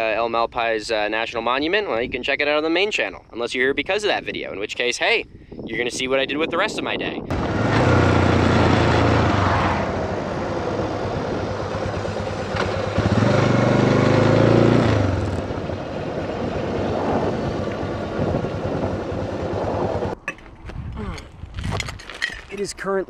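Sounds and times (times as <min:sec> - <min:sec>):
wind rushing: 0:05.2 - 0:22.0
motorcycle engine running: 0:07.3 - 0:20.2.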